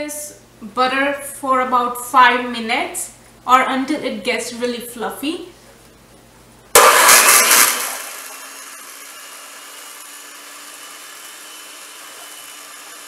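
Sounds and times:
hand mixer beating butter: 6.8 - 13.0
hand mixer motor hum: 6.8 - 13.0.

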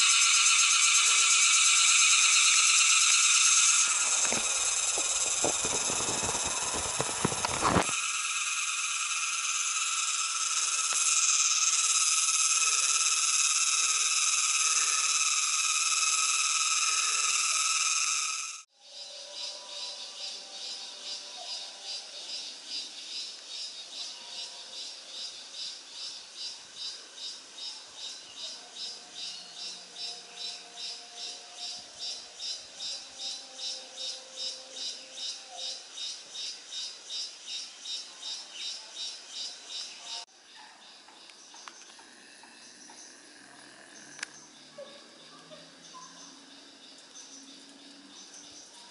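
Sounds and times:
insect chorus drone: 0.0 - 48.9
rustles and sharp clicks: 4.1 - 8.0.

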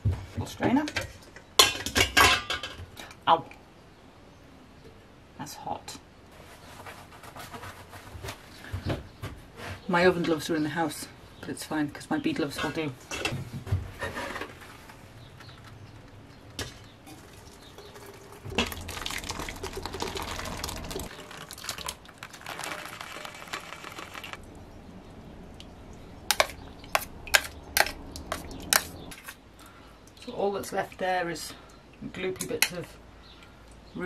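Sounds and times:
liquid pouring through strainer: 17.1 - 24.4.

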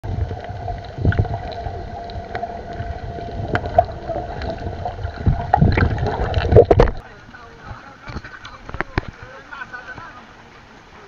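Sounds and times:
underwater rumble: 0.0 - 9.4
thin constant hum: 0.0 - 11.0
sharp clicks and crackles: 0.2 - 7.0.

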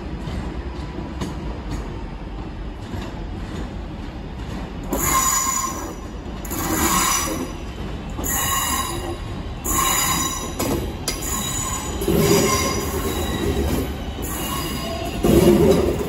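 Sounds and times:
train wheels squealing: 4.9 - 16.0.

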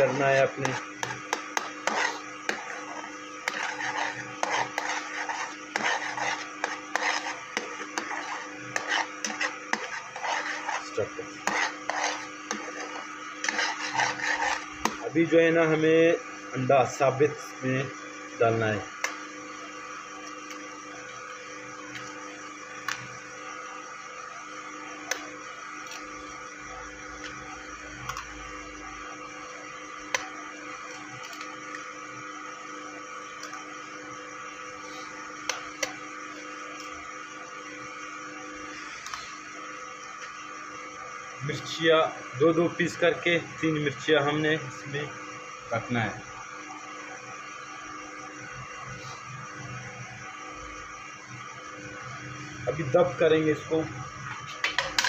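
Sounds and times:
spoon scraping frying pan: 0.0 - 15.0.

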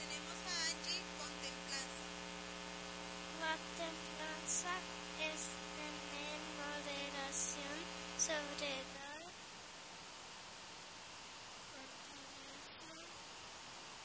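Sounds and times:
electrical mains hum: 0.0 - 14.0
child speaking into microphone: 3.4 - 9.3, 11.8 - 13.1.

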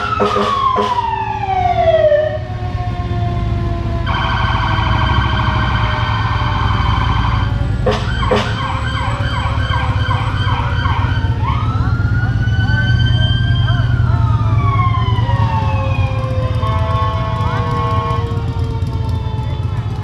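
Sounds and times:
short sharp siren blasts: 0.0 - 2.5, 4.0 - 11.7
siren warbling and yelping: 0.0 - 16.9.

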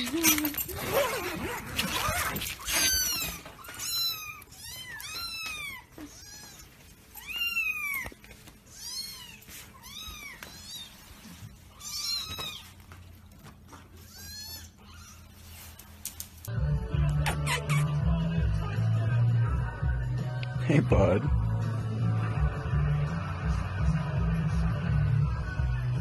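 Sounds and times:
kittens mewing: 0.0 - 12.9, 17.2 - 18.0.

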